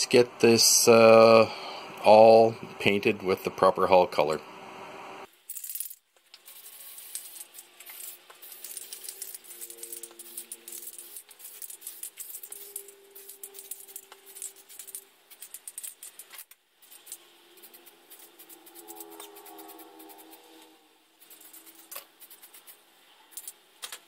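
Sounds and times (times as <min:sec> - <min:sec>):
spray can ball rattling: 0:05.5 - 0:20.4, 0:21.2 - 0:23.6
spray paint hissing: 0:06.4 - 0:20.5, 0:21.2 - 0:23.5.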